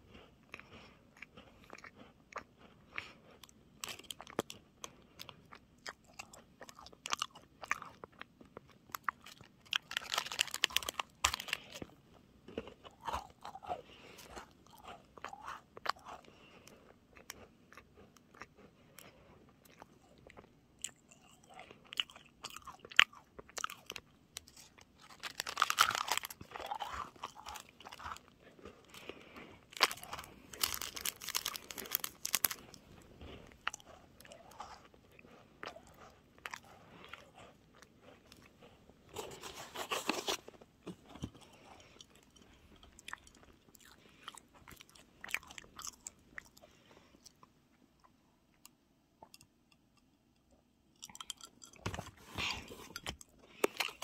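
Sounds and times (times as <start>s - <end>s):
crunching and chewing biscuit: 0.0s - 49.6s, 50.4s - 54.0s.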